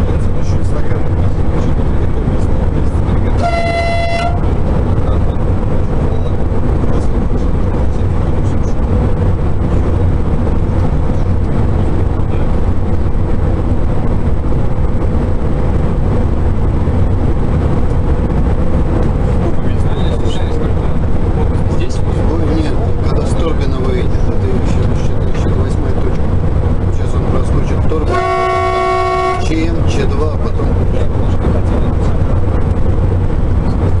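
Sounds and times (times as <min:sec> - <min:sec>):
train running rumble: 0:00.0 - 0:34.0
train horn toot: 0:03.4 - 0:04.5, 0:28.1 - 0:29.5.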